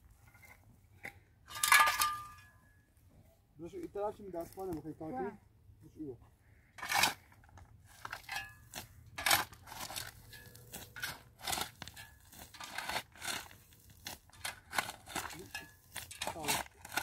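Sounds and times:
scraping and scuffing: 6.8 - 17.0.

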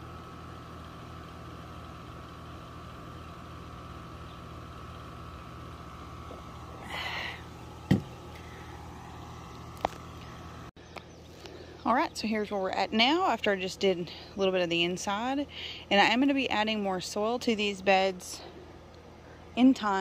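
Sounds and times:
low mechanical hum: 0.0 - 20.0
tumbler knocking on wooden boards: 7.9 - 8.2.

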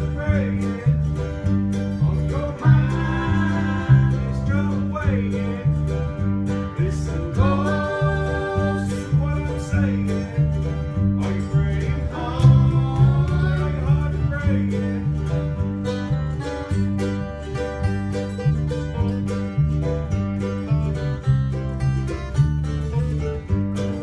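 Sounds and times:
acoustic guitar and mandolin strumming: 0.0 - 24.0
electric bass guitar: 0.0 - 24.0
lead vocal singing: 2.1 - 5.7, 6.7 - 10.5, 11.2 - 15.1.

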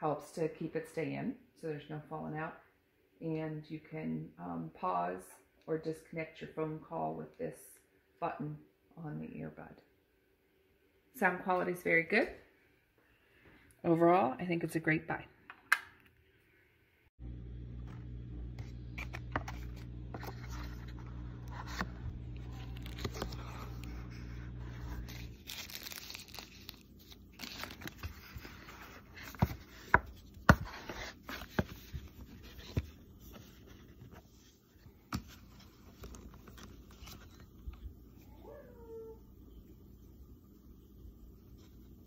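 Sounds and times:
low hum: 17.2 - 29.8
cardboard and foam rustling: 18.6 - 37.6.

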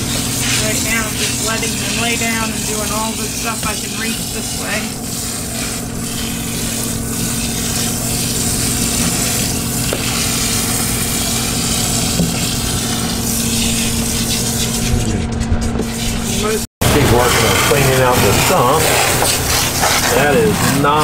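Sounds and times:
water spraying from nozzle: 0.0 - 14.9, 16.0 - 21.0
pump humming: 0.0 - 21.0.

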